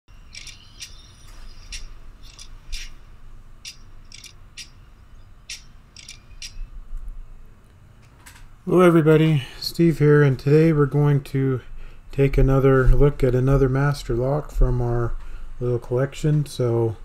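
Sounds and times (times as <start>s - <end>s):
short high-pitched chirps: 0.1s - 3.0s, 3.6s - 6.7s
faint low hum: 0.1s - 17.0s.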